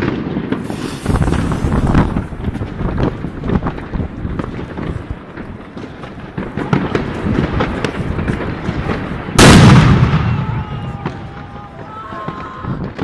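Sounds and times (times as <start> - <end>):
firecracker bang: 0.0 - 13.0.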